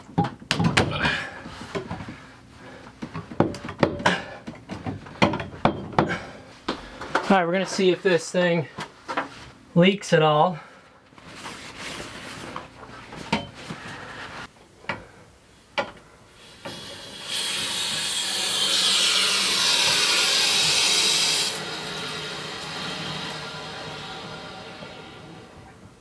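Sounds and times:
air hissing from water pipes: 16.3s - 26.0s.

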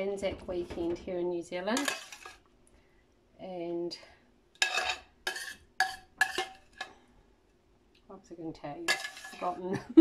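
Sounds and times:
spoon scraping a steel pan: 1.7s - 2.5s, 4.6s - 7.0s, 8.8s - 9.7s.

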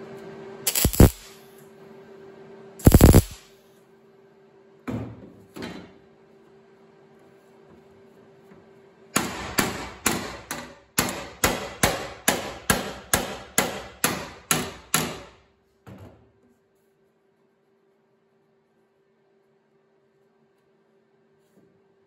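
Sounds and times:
hammer striking sheet metal: 9.2s - 15.4s.

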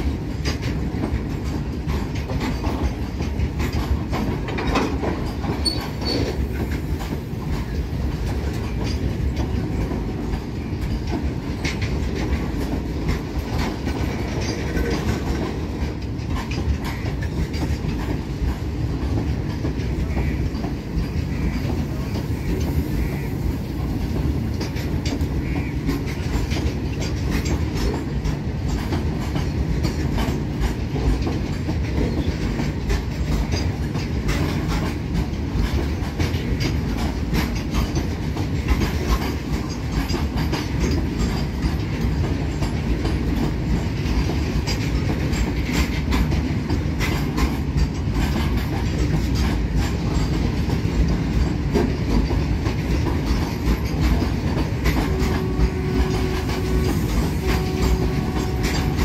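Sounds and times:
train wagons rumbling: 0.0s - 59.0s
wheels clicking over rail joints: 0.0s - 59.0s.

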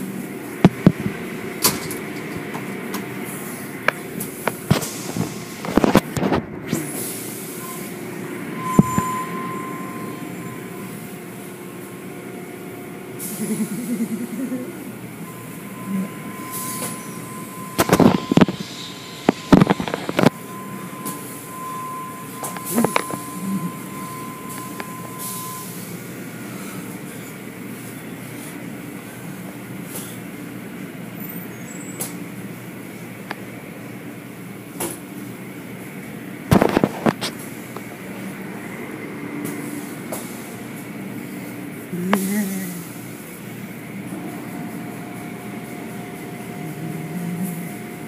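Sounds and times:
car wash machinery clanking: 0.0s - 48.0s
steady high tone: 7.5s - 25.9s.

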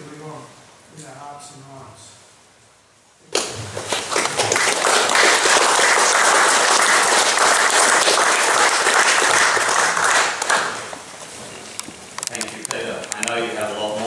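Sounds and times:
audience applauding: 3.3s - 11.1s.

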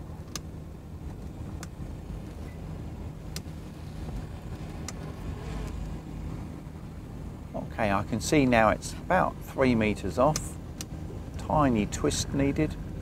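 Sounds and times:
motorboat engine at low revs: 0.0s - 13.0s
light sharp ticks: 0.2s - 1.8s, 3.3s - 3.6s, 10.3s - 11.5s.

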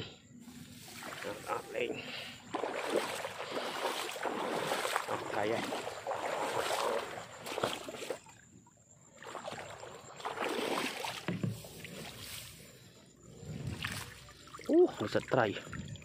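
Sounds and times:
grass rustling: 0.4s - 1.9s, 10.2s - 12.8s
water sloshing: 0.5s - 16.0s.

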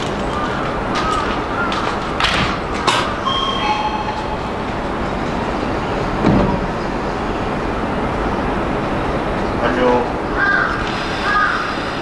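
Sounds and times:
train rumble: 0.0s - 12.0s
train doors sliding closed: 2.0s - 7.9s.

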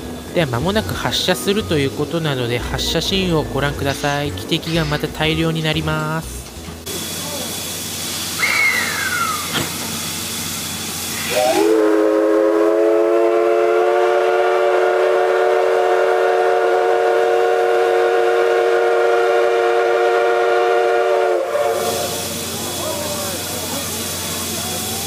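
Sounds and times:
steam hissing: 0.0s - 25.0s
steam locomotive whistle: 8.3s - 9.6s, 11.0s - 23.4s.

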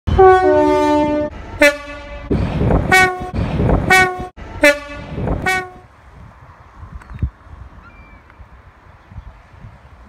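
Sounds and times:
locomotive horn blasts: 0.1s - 5.9s
train rumbling: 0.1s - 10.0s.

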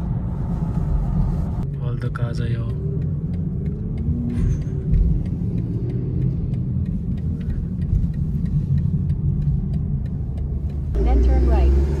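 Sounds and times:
car cabin road and engine rumble: 0.0s - 12.0s.

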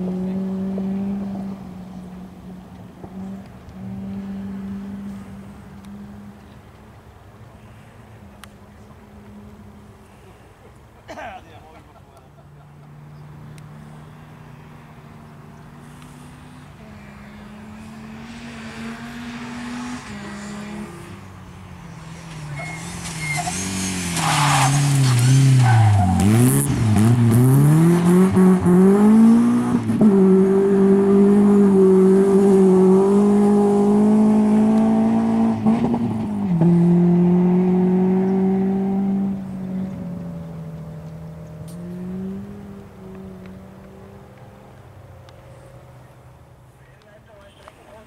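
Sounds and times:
rally car engine revving: 0.0s - 6.4s, 13.0s - 44.8s
tyre squeal: 22.1s - 26.5s.

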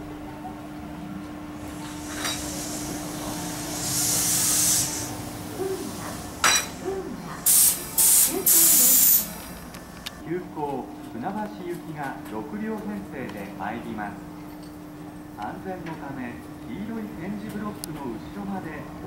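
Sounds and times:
steady low hum: 0.0s - 8.4s
compressed air hiss: 1.6s - 9.5s
loud air blasts: 1.6s - 9.6s.

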